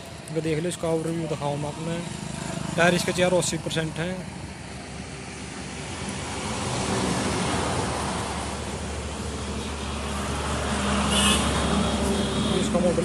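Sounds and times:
vehicle engine running: 0.0s - 6.6s.

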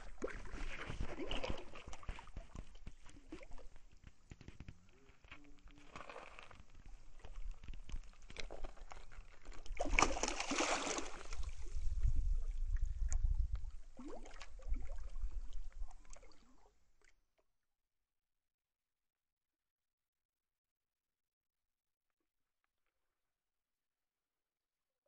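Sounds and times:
fish splashing in water: 0.0s - 11.8s.

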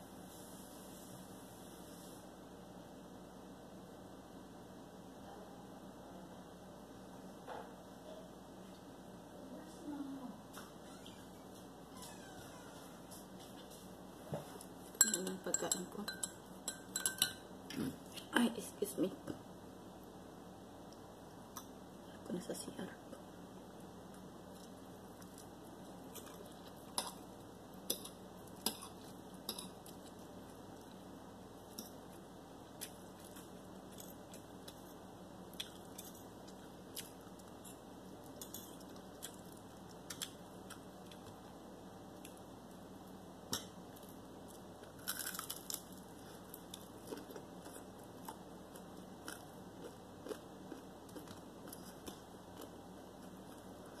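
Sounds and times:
chewing and biting: 44.9s - 53.7s.

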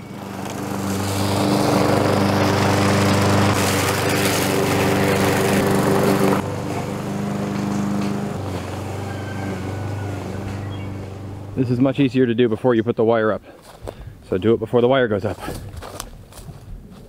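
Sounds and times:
lawn mower engine running: 0.0s - 11.9s.

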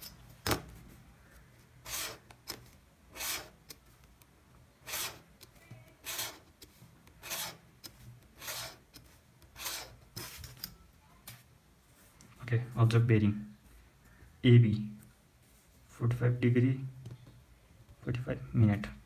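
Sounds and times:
pen scratching along a ruler: 1.8s - 3.8s, 4.8s - 5.3s, 5.9s - 10.4s.

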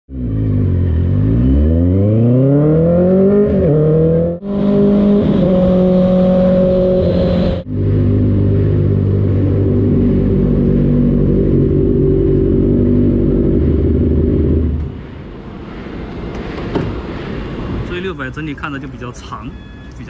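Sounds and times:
motorcycle engine revving: 0.1s - 15.1s.

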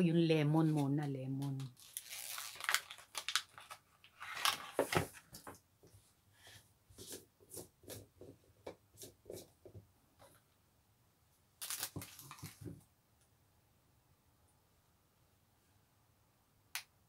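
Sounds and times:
plastic bag crinkling: 1.6s - 4.9s, 11.6s - 12.7s.

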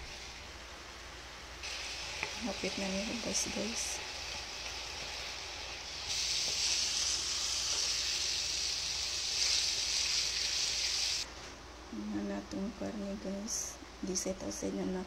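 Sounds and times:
meat sizzling in a pan: 1.6s - 11.3s.

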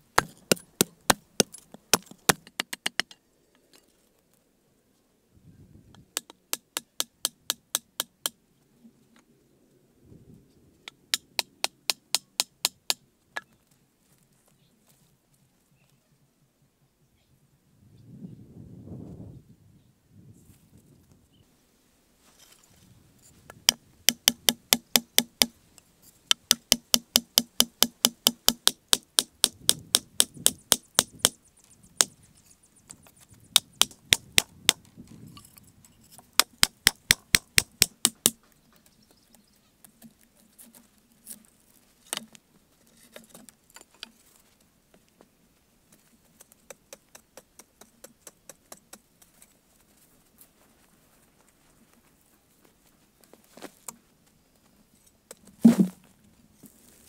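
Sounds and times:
wooden club pounding stakes: 0.2s - 3.2s, 23.6s - 25.6s, 26.3s - 31.4s, 32.0s - 32.2s, 33.5s - 34.8s, 36.4s - 38.4s, 55.6s - 56.0s.

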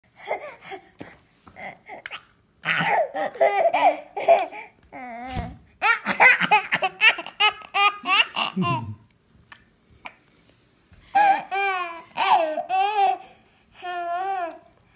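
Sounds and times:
baby laughing: 2.6s - 4.7s, 5.8s - 9.0s, 11.2s - 13.2s.

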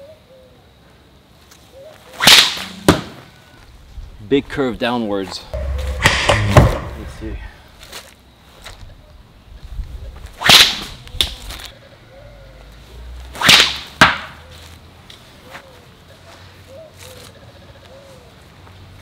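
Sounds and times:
sharp crack: 2.2s - 3.3s, 5.6s - 7.4s, 10.4s - 11.7s, 13.3s - 14.4s.

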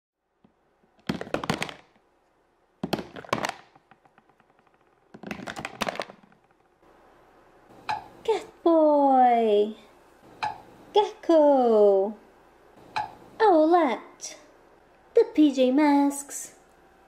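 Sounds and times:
rapid clicks and knocks: 0.9s - 2.0s, 2.8s - 6.8s.

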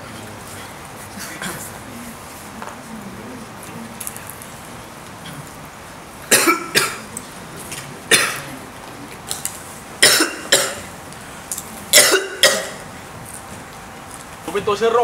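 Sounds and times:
man coughing: 1.1s - 1.7s, 6.3s - 7.1s, 8.1s - 8.6s, 10.0s - 10.9s, 11.9s - 12.8s.

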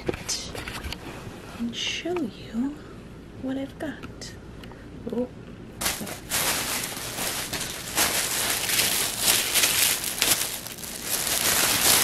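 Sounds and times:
plastic wrapping crinkling: 5.8s - 12.0s.

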